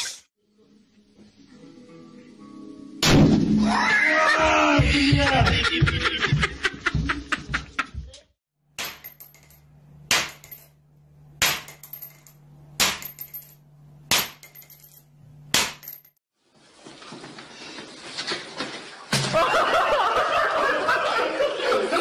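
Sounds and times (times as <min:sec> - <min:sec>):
sharp strikes: 0:03.0 - 0:03.7.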